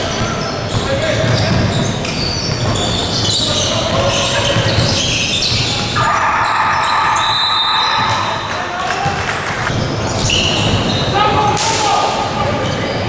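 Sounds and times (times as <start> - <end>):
basketball bouncing: 0.0 - 6.0, 7.8 - 11.0
sneakers squeaking on floor: 0.0 - 11.6, 12.4 - 13.0
drawn-out high squeal: 5.0 - 8.5.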